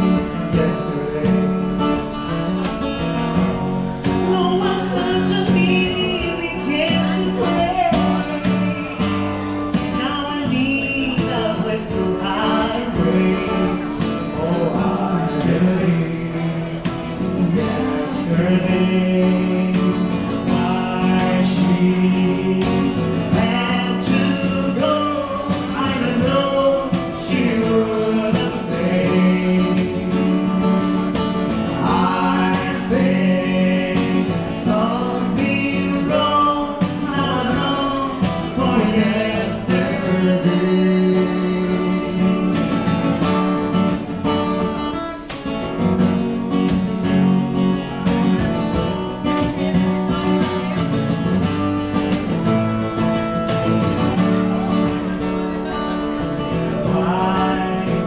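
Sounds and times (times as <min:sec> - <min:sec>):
man singing a slow ballad: 0:00.0 - 0:02.3, 0:04.0 - 0:43.0, 0:56.4 - 0:58.0
acoustic guitar strumming: 0:00.0 - 0:58.0.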